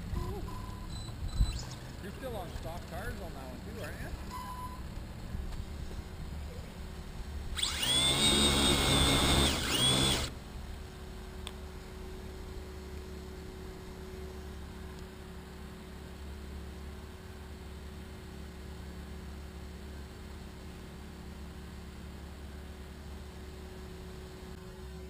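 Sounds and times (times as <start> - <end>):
electric motor whine: 7.5 - 10.4, 24.4 - 25.0.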